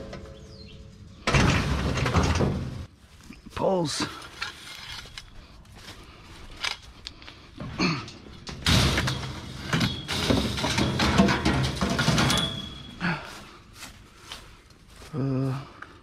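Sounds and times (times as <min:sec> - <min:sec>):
metal poles clattering on wire mesh: 0:07.8 - 0:13.0.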